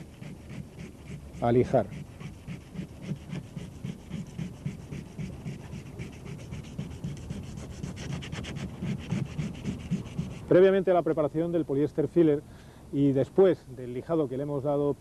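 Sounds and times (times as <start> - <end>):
sandpaper rubbing on fibreglass: 0.0 - 10.8.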